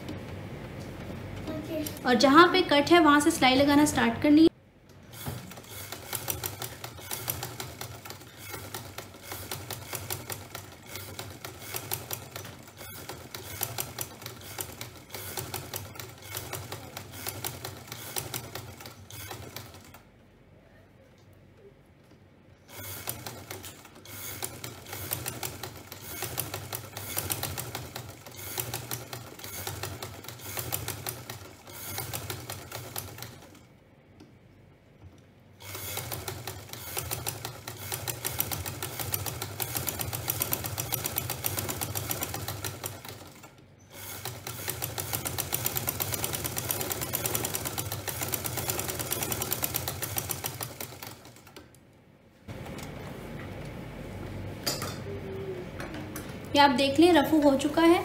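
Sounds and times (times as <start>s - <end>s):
sewing machine stitching: 5.0s - 20.1s, 22.7s - 33.7s, 35.6s - 51.8s.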